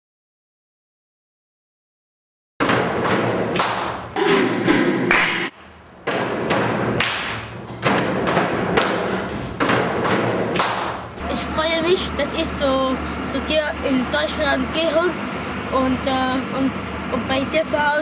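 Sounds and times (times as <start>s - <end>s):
loud percussive thumps and taps: 2.6s - 11.1s.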